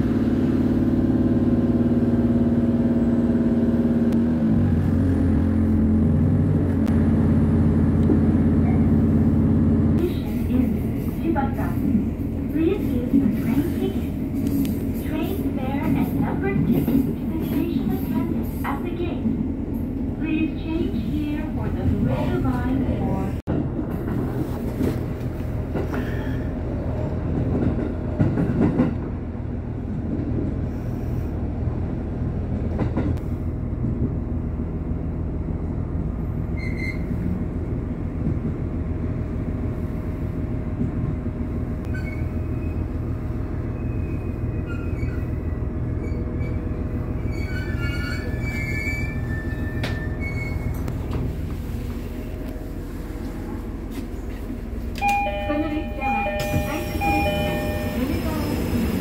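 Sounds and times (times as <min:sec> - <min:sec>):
diesel engine droning: 0:00.0 - 0:10.8
high metallic brake squeals: 0:36.5 - 0:37.1, 0:41.9 - 0:42.9, 0:43.7 - 0:46.6, 0:47.2 - 0:50.8.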